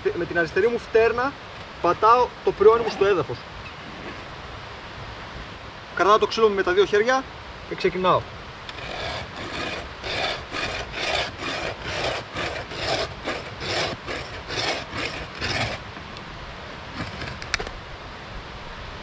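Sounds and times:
saw rasping through wood: 8.7s - 15.8s, 16.9s - 17.4s.

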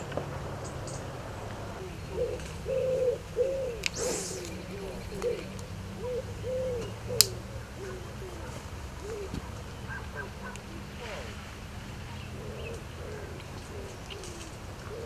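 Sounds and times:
pigeon cooing: 1.6s - 11.4s, 12.1s - 15.0s
brief hiss: 4.0s - 4.5s.

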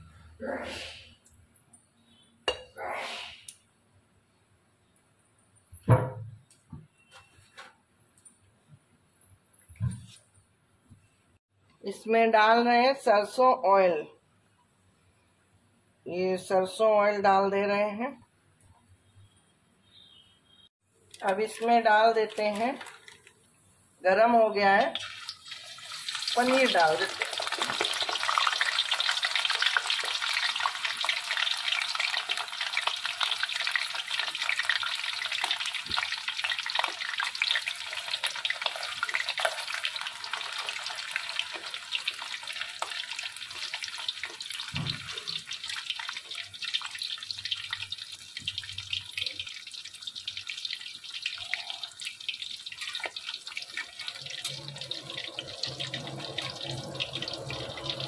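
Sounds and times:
cheese sizzling in hot oil: 24.9s - 58.0s.

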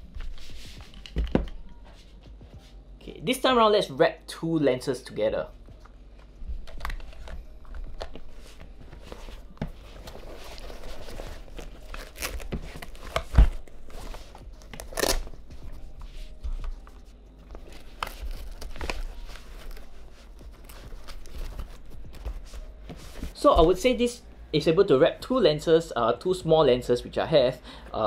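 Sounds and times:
fabric rustling and scraping: 8.0s - 23.8s.

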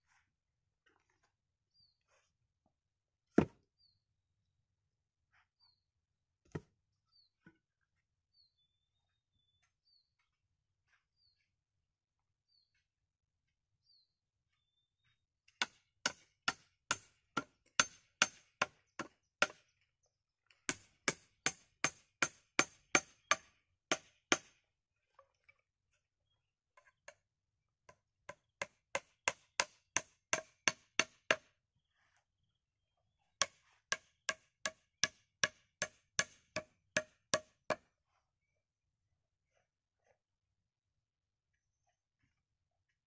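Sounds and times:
hatchet chopping wood: 15.6s - 19.6s, 20.7s - 24.6s, 28.3s - 31.5s, 33.4s - 37.9s.

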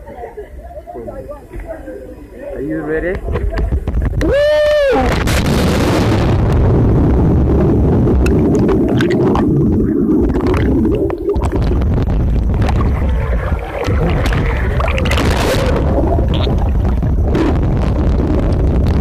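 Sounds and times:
underwater churning rumble: 3.2s - 19.0s
small bubble clicks: 8.1s - 19.0s.

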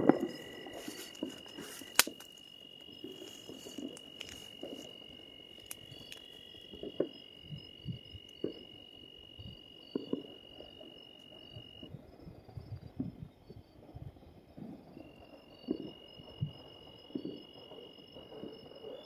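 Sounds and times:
steady high-pitched whine: 0.0s - 11.8s
distant firecrackers and gunshots: 9.9s - 10.9s.

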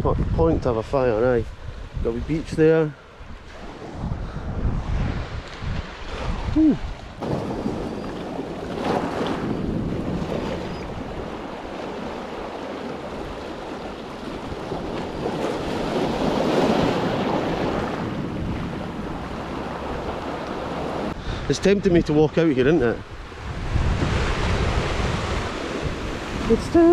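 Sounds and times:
waves washing over pebbles: 7.1s - 21.2s.

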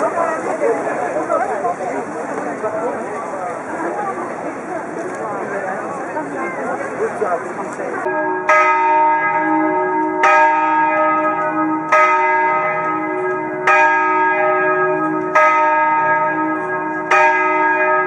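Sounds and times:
church bell tolling: 8.0s - 18.0s.

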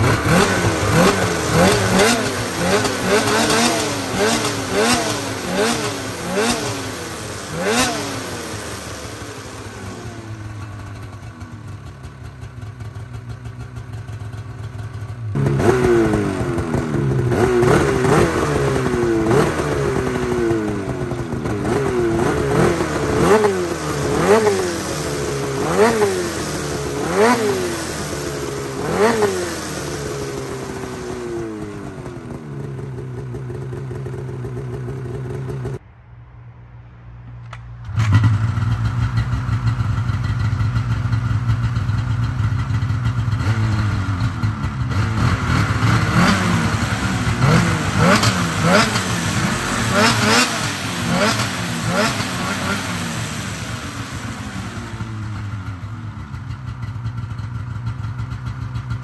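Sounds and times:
snowmobile engine revving: 0.0s - 11.9s, 15.0s - 35.8s, 43.3s - 55.8s
snowmobile engine idling: 0.0s - 35.8s, 38.2s - 59.0s.

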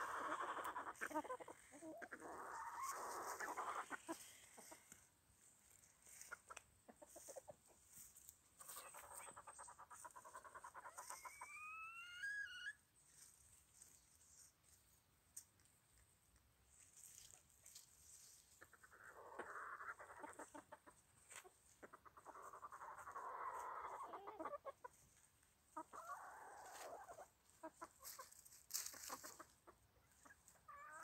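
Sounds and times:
rustling in dry leaves: 0.0s - 10.1s, 16.7s - 19.0s, 24.9s - 29.6s
chickens clucking: 0.0s - 31.0s.

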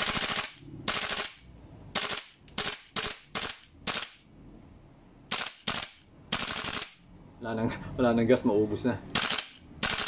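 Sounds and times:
airsoft rifle bolt cycling bursts: 0.0s - 1.4s, 2.0s - 4.2s, 9.2s - 10.0s.

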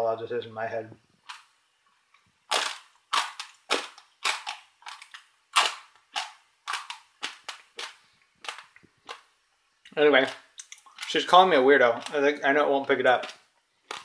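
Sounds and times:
dry pasta crunched while chewing: 2.5s - 9.3s, 13.2s - 14.0s.

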